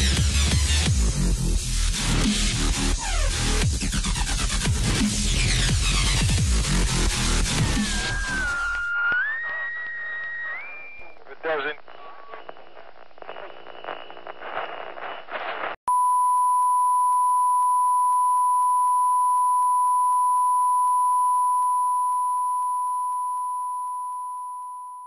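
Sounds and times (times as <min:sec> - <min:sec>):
crackling glitchy noise: 0:06.9 - 0:15.8
steady pure beep: 0:08.2 - 0:25.0.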